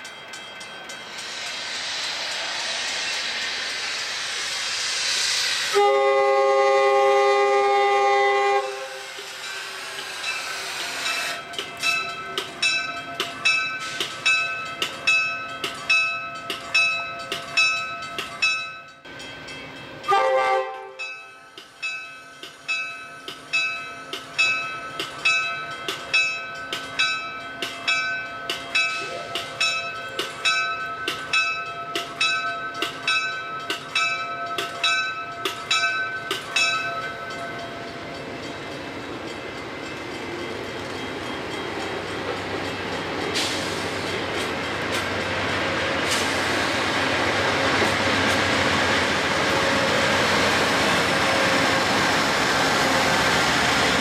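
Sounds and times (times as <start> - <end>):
train air horn: 5.7 - 9.1, 20.1 - 21.0
bell ringing: 9.2 - 43.0.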